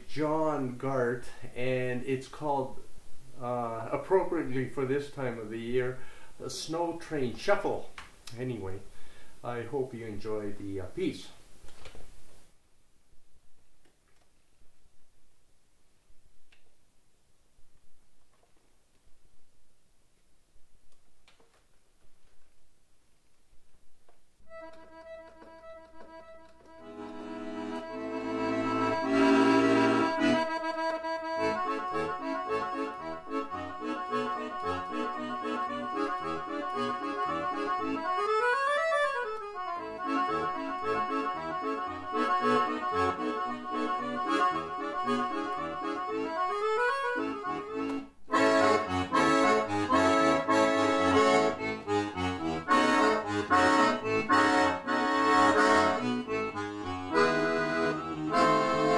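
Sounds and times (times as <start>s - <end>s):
accordion playing ragtime shuffle: 3.4s - 7.6s, 24.5s - 58.9s.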